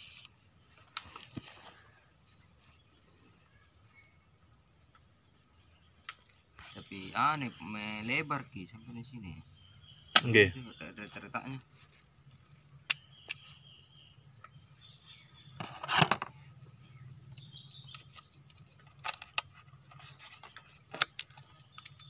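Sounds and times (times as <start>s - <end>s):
metallic clicks and knocks: 17.9s - 22.0s.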